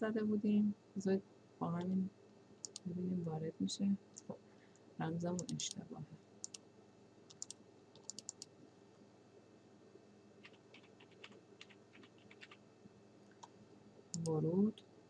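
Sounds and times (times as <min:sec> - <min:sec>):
faint keyboard typing: 0:02.6 - 0:02.9, 0:04.2 - 0:05.8, 0:06.4 - 0:06.6, 0:07.3 - 0:08.5, 0:10.4 - 0:12.7, 0:13.3 - 0:14.4.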